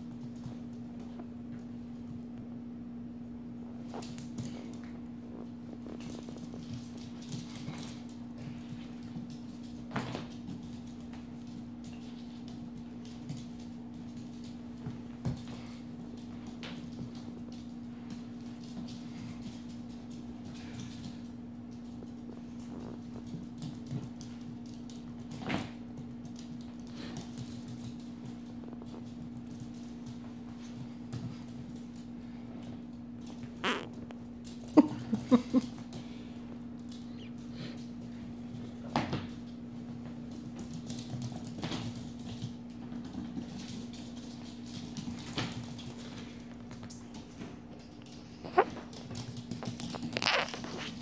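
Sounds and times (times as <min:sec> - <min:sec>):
steady low hum: 0:00.0 - 0:51.0
dog claws pattering on wood floor: 0:03.8 - 0:51.0.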